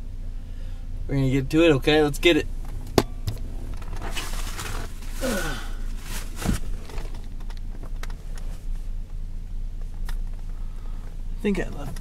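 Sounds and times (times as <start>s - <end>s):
steady low hum: 0.0s - 12.0s
clothing and seats rustling: 2.2s - 12.0s
knocks and clicks in a car: 2.6s - 4.0s, 11.1s - 12.0s
short falling grunt: 5.1s - 5.9s.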